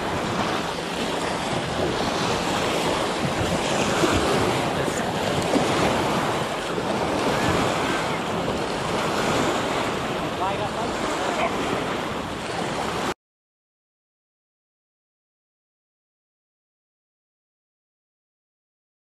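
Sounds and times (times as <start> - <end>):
wind buffeting microphone: 0.0 - 13.1
water lapping and splashing: 0.0 - 13.2.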